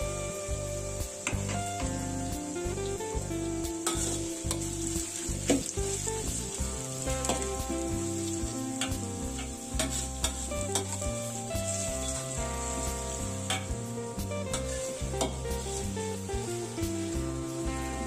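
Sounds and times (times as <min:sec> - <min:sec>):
background music with bass: 0:00.0 - 0:18.0
onions sizzling in hot oil: 0:00.0 - 0:18.0
spatula scraping a wok: 0:03.8 - 0:17.6.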